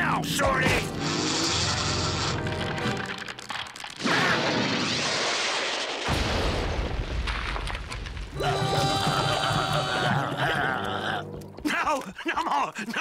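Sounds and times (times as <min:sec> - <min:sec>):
music: 0:00.0 - 0:03.2
cartoon crash: 0:04.0 - 0:07.1.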